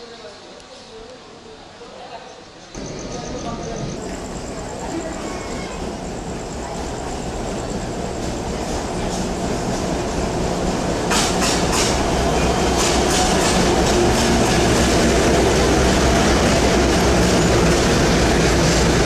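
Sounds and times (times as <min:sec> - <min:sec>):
locomotive engine drone: 0:02.8 - 0:19.0
train wheels clicking over rail joints: 0:03.9 - 0:19.0.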